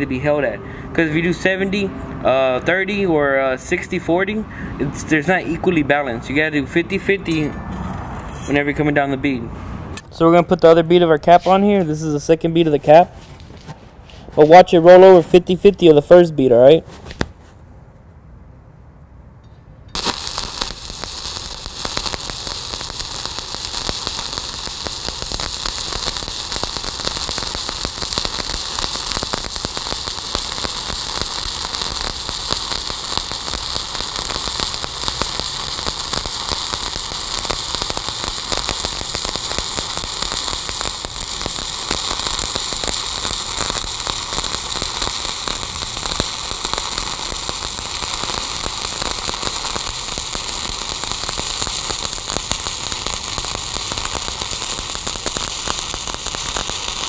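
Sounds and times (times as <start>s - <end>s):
welding arc crackling and hissing: 20.0s - 57.0s.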